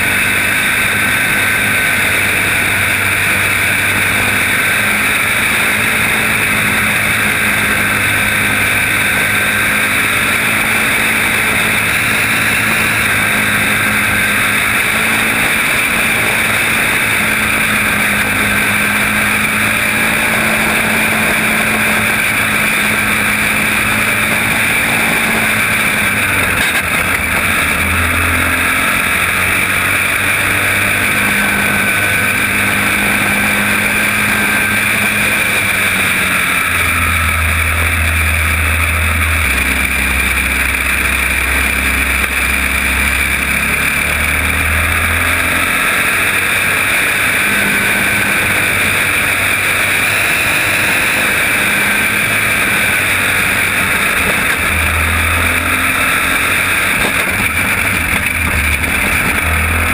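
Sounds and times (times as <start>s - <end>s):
other kart engines: 0.0s - 59.9s
racing kart engine: 0.0s - 59.9s
steady noisy rush: 0.0s - 59.9s.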